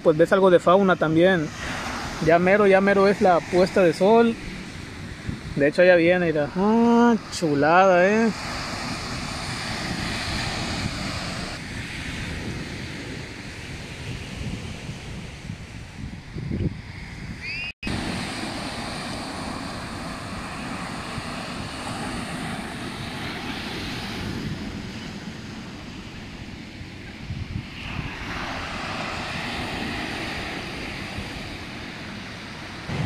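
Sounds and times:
surf: 0.0 - 15.6, 17.4 - 33.0
wind: 0.0 - 33.0
airliner engines rumbling: 17.8 - 33.0.

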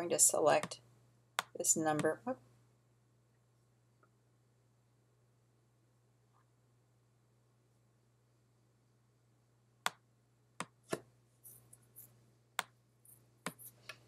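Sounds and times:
soft rustles: 11.4 - 12.2.

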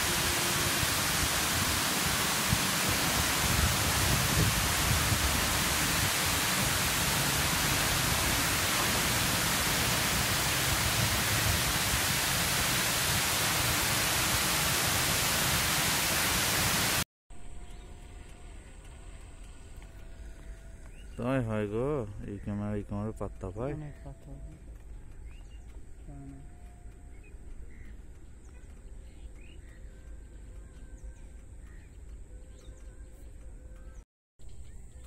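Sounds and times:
water rushing over spillway: 0.0 - 17.0.

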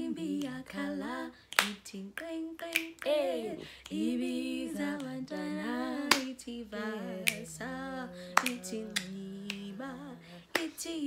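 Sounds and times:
women singing: 0.0 - 11.0
finger snaps: 1.5 - 3.1, 6.1 - 6.3, 7.2 - 7.5, 8.4 - 9.7, 10.5 - 10.8.

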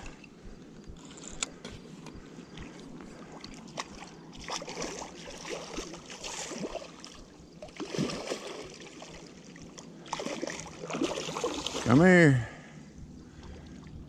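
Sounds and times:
water splashing from thrashing fish: 3.6 - 12.1.

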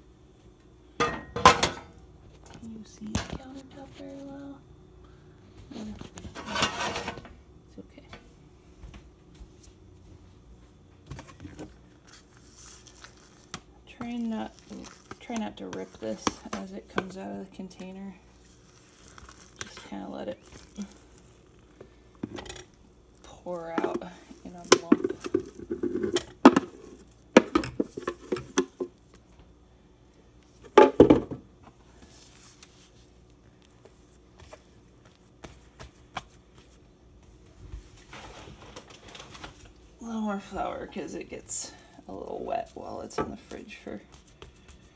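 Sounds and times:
hands patting dough: 11.2 - 29.4, 31.8 - 37.4, 42.2 - 44.9.

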